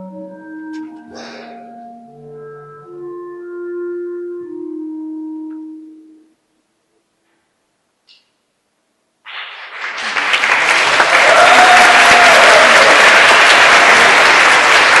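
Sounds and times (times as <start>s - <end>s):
audience applause: 9.3s - 15.0s.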